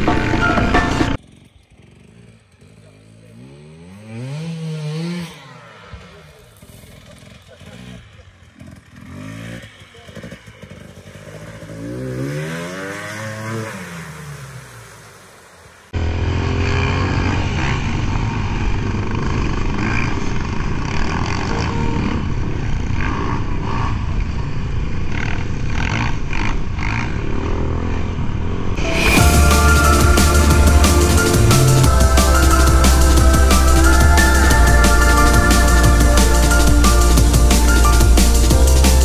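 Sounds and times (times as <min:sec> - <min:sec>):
loud rough engine: 0:00.0 - 0:13.6, 0:16.0 - 0:39.0
dirt bike engine revving: 0:00.0 - 0:14.4, 0:16.0 - 0:28.0.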